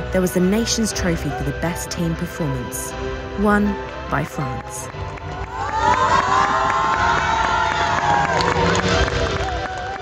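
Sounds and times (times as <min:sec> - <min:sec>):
young people cheering and shrieking: 0:05.4 - 0:10.0.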